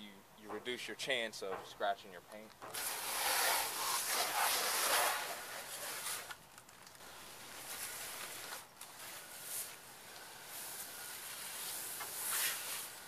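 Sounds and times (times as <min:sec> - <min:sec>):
water spraying on car: 0:02.8 - 0:06.3, 0:07.0 - 0:13.0.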